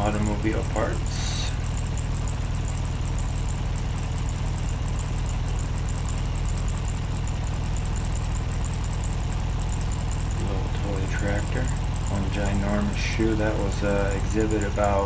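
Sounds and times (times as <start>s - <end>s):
low hum: 0.0s - 15.0s.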